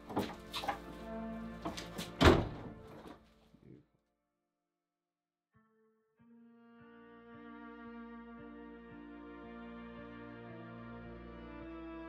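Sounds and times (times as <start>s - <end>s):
bowed string notes: 0.0s - 3.2s, 5.6s - 12.0s.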